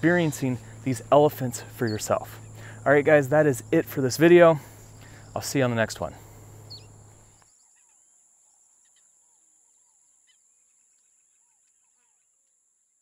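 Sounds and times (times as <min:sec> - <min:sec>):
bird chirps: 0:00.0 - 0:02.9, 0:06.2 - 0:08.0
high insect trill: 0:00.0 - 0:12.6.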